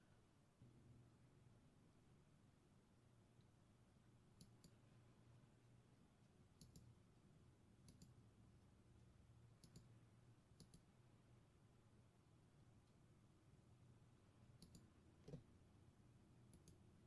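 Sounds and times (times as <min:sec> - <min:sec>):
faint low hum: 0:00.0 - 0:17.0
faint computer mouse clicks: 0:04.4 - 0:04.8, 0:06.6 - 0:06.9, 0:07.8 - 0:08.2, 0:09.6 - 0:09.9, 0:10.6 - 0:10.9, 0:14.6 - 0:15.4, 0:16.5 - 0:16.8.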